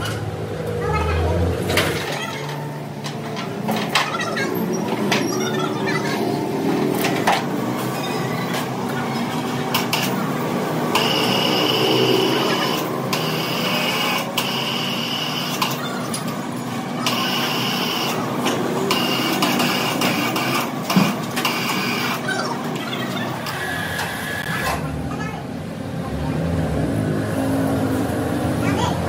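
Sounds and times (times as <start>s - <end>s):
workshop machinery humming: 0.0s - 29.0s.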